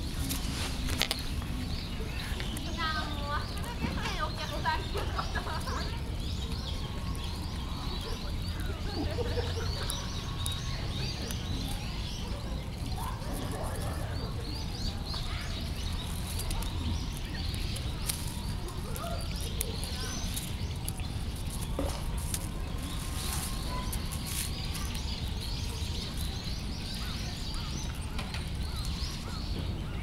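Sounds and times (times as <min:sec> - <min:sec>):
dry leaves crackling: 0:00.0 - 0:30.0
small birds chirping: 0:00.0 - 0:30.0.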